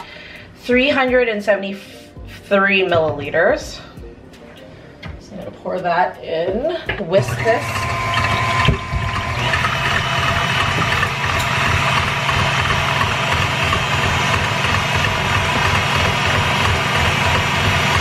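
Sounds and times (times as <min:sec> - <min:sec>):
stand mixer whipping cream: 0:07.2 - 0:18.0.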